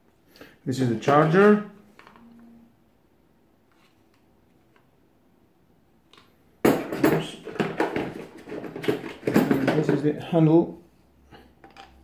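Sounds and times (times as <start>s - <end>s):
hard plastic clattering: 6.2s - 10.3s.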